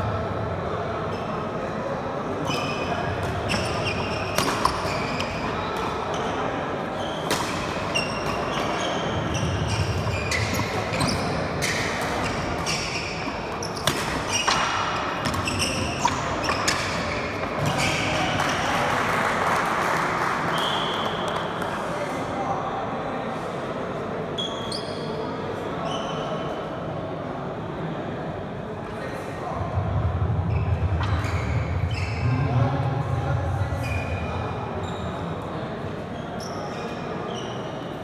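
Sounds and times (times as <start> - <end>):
people talking: 0.0 - 37.4
sneakers squeaking on wooden floor: 2.5 - 18.4, 24.4 - 25.1, 30.5 - 32.3, 33.8 - 35.3, 36.2 - 37.9
rackets striking shuttlecock: 3.2 - 4.9, 7.2 - 8.8, 11.6 - 17.8.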